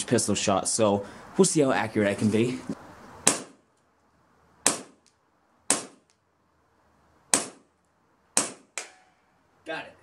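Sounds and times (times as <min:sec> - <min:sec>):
airsoft pistol shots: 0:03.2 - 0:03.6, 0:04.6 - 0:05.0, 0:05.7 - 0:06.1, 0:07.3 - 0:07.7, 0:08.4 - 0:09.1.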